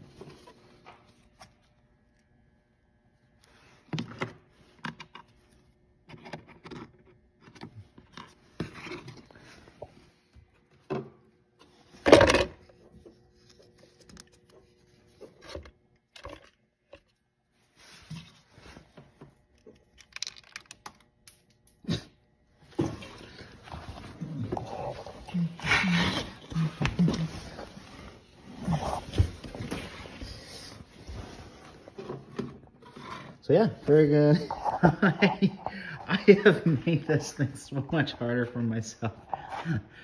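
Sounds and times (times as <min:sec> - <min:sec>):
plastic clicks and rattles: 0:19.9 - 0:21.4.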